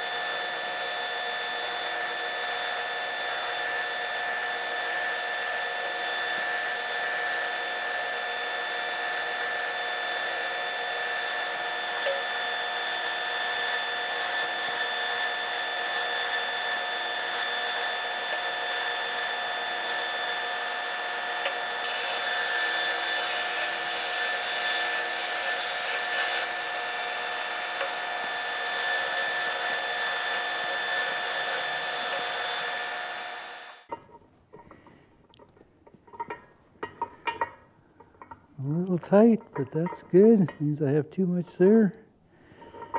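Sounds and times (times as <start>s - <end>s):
belt grinder motor whine: 0.0s - 33.9s
metal rasping on grinding belt: 0.0s - 34.8s, 38.0s - 40.8s.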